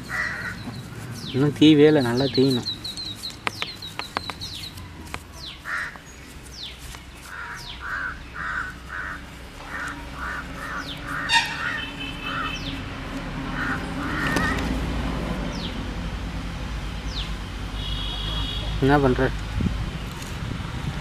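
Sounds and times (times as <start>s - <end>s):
crows cawing: 0.0s - 0.8s, 5.6s - 6.1s, 7.3s - 12.8s, 13.4s - 14.8s
small birds chirping and whistling: 0.0s - 8.9s, 9.7s - 12.8s
rapid high bird trill: 5.4s - 12.9s.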